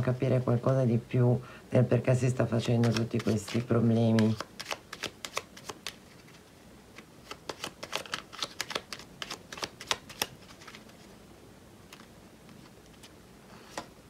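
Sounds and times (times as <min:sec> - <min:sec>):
cards being shuffled: 0:02.6 - 0:11.1, 0:11.9 - 0:14.0.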